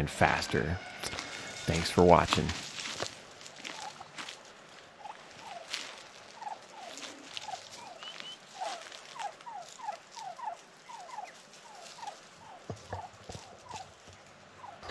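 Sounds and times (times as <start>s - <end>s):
turkeys calling softly: 0.3s - 14.9s.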